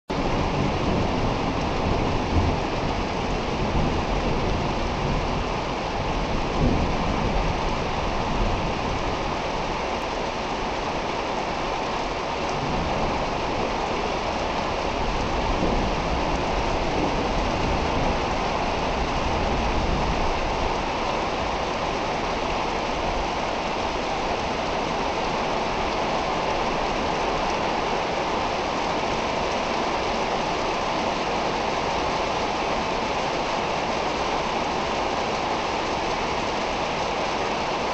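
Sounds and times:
heavy rain falling: 0:00.1 - 0:37.9.

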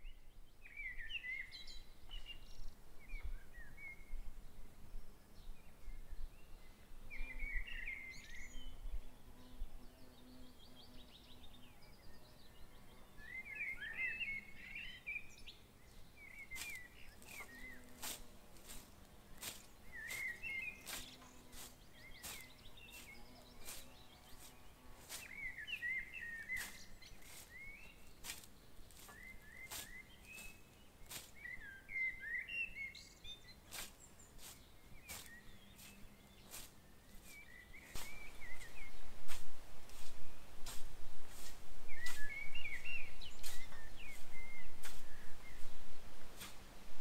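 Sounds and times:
songbirds warbling: 0:00.0 - 0:46.6
scythe swishing through grass: 0:16.5 - 0:31.5, 0:33.7 - 0:45.6, 0:46.2 - 0:46.7.

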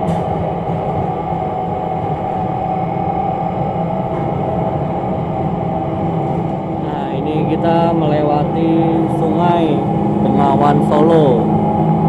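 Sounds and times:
engine drone: 0:00.0 - 0:12.0
steady whine: 0:00.0 - 0:12.0
track rumble: 0:00.0 - 0:12.0.

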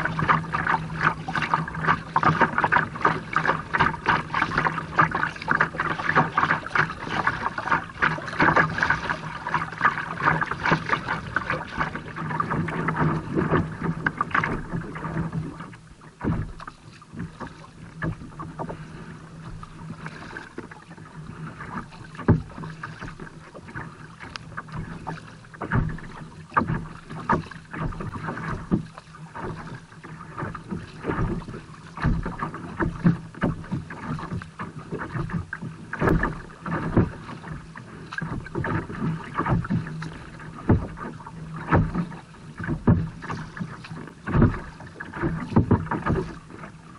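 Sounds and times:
water splashing against kayak hull: 0:00.0 - 0:46.9.

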